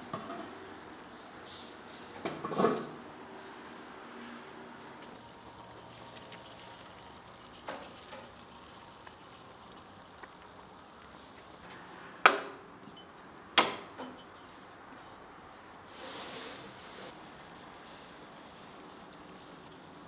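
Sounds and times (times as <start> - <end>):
faint steady background noise: 0.0 - 20.0.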